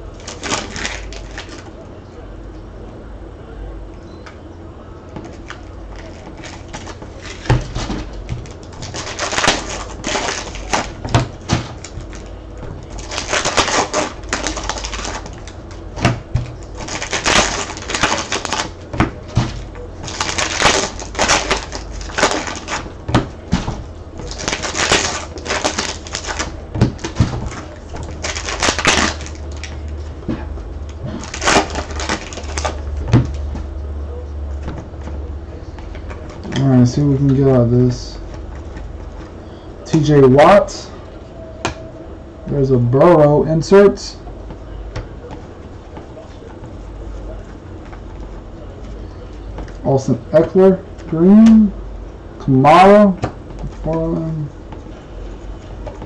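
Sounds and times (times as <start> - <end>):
card wrappers crinkling: 0.0 - 1.7, 5.2 - 30.2, 30.8 - 33.7.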